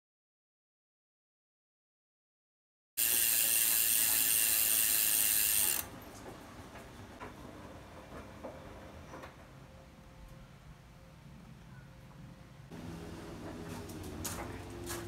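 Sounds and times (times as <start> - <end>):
bicycle freehub ratcheting: 3.0 - 5.9.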